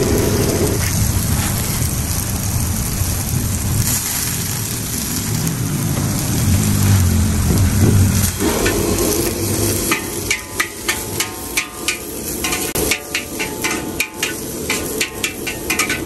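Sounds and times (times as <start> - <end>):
frying roar: 0.0 - 16.0
metal spatula clanging on wok: 8.4 - 16.0.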